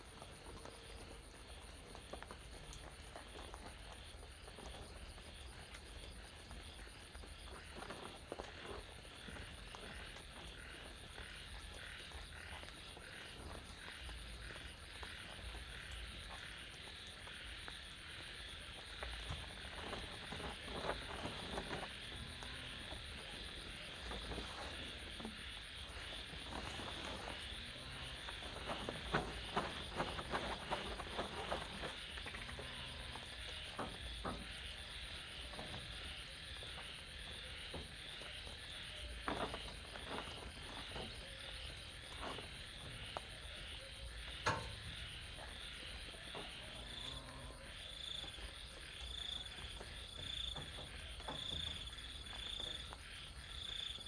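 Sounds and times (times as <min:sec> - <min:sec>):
frogs calling: 0:00.0 - 0:54.0
tarp rustling and knocking: 0:18.8 - 0:36.7, 0:39.0 - 0:43.5.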